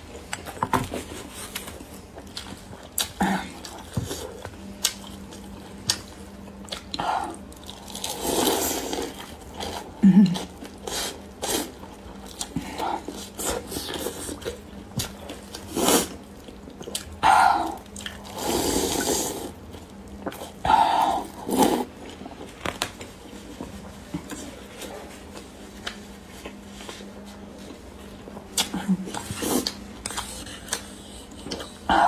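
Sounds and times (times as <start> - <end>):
chewing: 0.3 - 27.0, 28.1 - 31.9
slurping noodle soup: 15.6 - 16.2, 18.1 - 19.6, 21.0 - 21.9.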